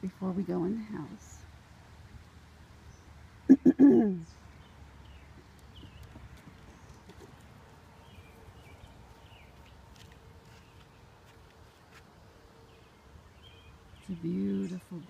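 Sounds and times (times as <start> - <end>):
small birds chirping: 3.9 - 11.6, 12.6 - 15.0.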